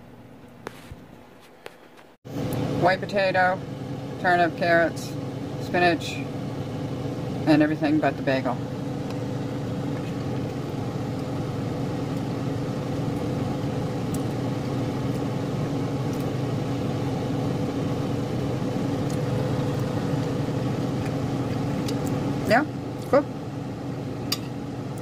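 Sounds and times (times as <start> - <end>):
steady mechanical hum: 0.0 - 25.0.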